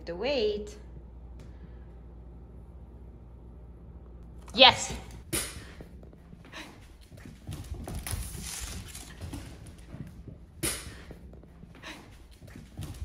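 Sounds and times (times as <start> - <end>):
dog claws clicking on wooden floor: 7.3 - 10.2.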